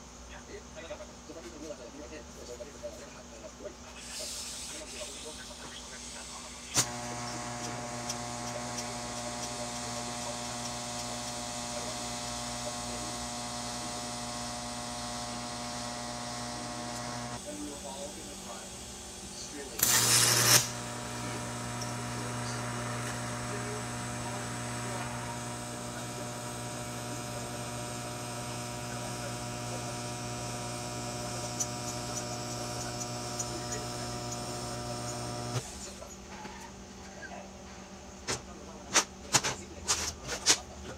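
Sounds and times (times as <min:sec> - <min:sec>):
welding arc electric hum: 0:06.1 - 0:36.0
welding spatter pops: 0:06.7 - 0:11.4, 0:19.8 - 0:25.2
welding arc crack: 0:06.7 - 0:17.5, 0:19.6 - 0:35.7.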